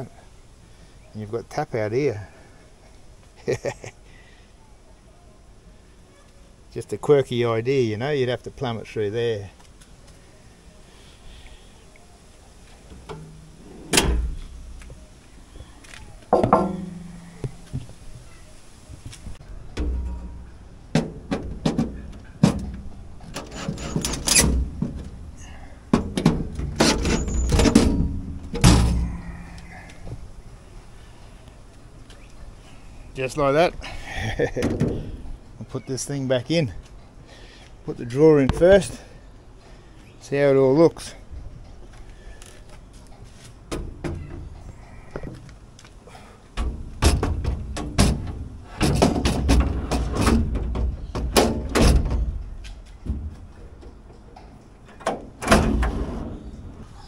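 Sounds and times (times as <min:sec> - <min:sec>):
metal clatter: 0:16.3 - 0:17.3
sharp knocks: 0:16.3 - 0:17.6.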